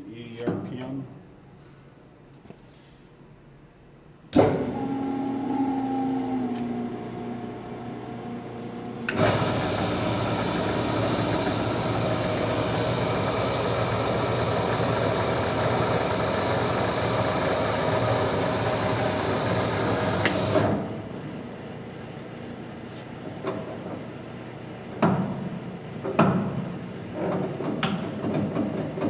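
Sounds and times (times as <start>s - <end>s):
quiet motor hum: 0.0s - 27.1s
lathe running: 4.4s - 20.8s.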